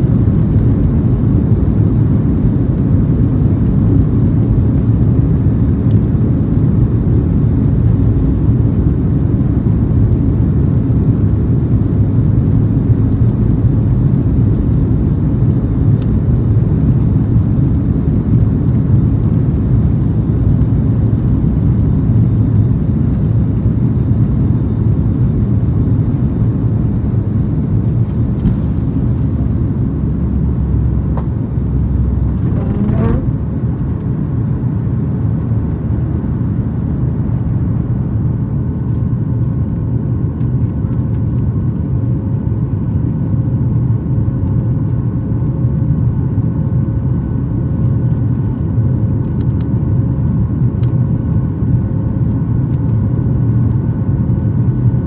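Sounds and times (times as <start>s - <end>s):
jet engines low rumble: 0.0s - 55.0s.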